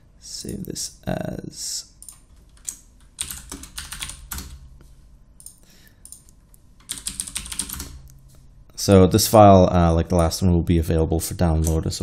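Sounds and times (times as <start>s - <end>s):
typing on computer keyboard: 2.0s - 4.6s, 5.4s - 8.1s.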